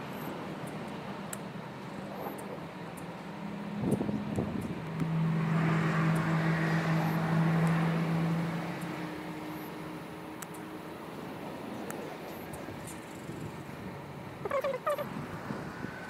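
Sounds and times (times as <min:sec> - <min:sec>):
road hiss: 0:00.0 - 0:16.0
vehicle engine passing: 0:03.4 - 0:10.3.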